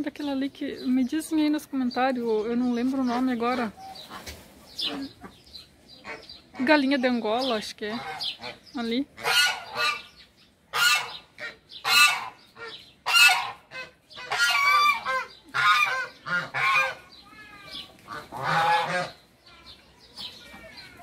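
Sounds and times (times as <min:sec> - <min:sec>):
geese honking: 0:02.9 - 0:19.3.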